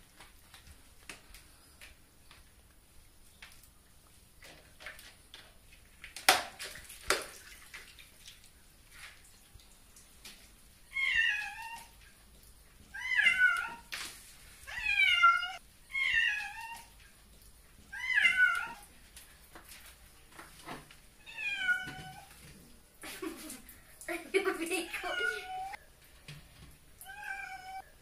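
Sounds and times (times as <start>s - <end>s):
cat meowing: 10.9s - 11.9s, 12.9s - 13.9s, 14.7s - 16.9s, 17.9s - 18.9s, 21.2s - 22.3s, 25.0s - 25.8s, 27.0s - 27.9s.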